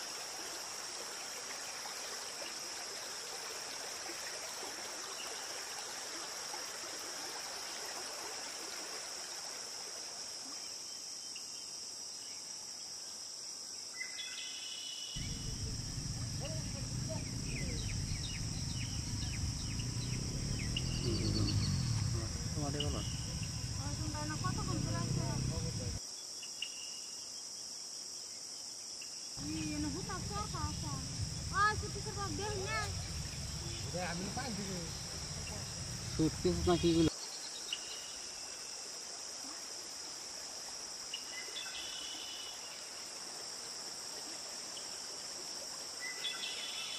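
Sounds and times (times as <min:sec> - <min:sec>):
high insect drone: 0:00.0 - 0:46.9
birds chirping: 0:15.2 - 0:26.0, 0:29.4 - 0:37.1
low rumble: 0:15.2 - 0:26.0, 0:29.4 - 0:37.1.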